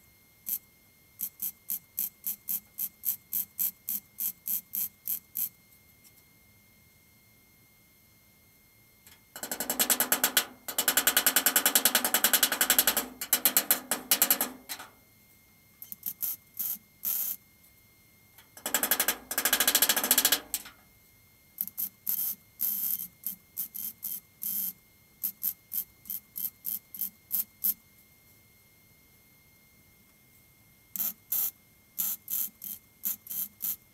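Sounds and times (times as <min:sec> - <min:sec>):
welder arc crackling: 0:09.4 - 0:14.9, 0:18.6 - 0:20.8.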